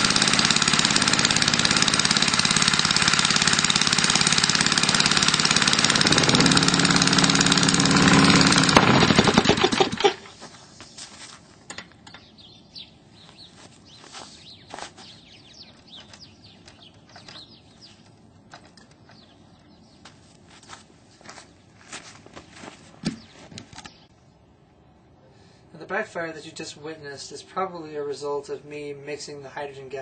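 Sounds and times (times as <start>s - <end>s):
small engine running: 0.0s - 10.3s
engine backfire bang: 5.8s - 10.0s.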